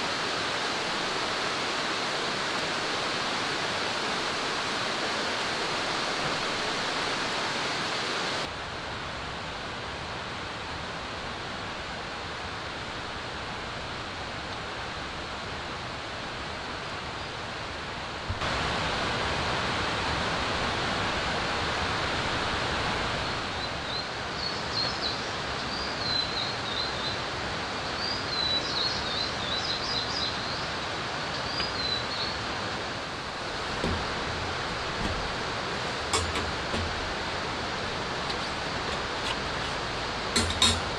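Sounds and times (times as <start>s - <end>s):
rain and running water: 0.0s - 40.9s
small birds chirping: 23.5s - 27.2s, 27.9s - 32.6s.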